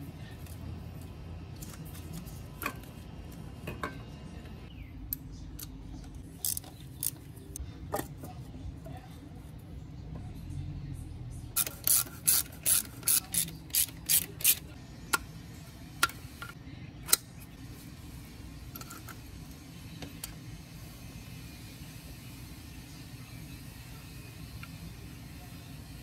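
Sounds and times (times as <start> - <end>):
hand ratchet clicking: 11.6 - 14.6.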